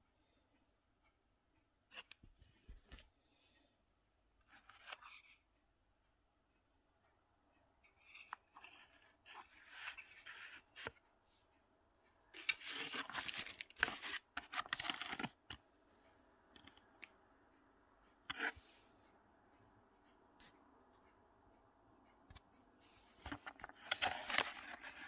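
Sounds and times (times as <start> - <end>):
plastic packaging scraping and rustling: 12.4 - 15.4, 23.3 - 25.0.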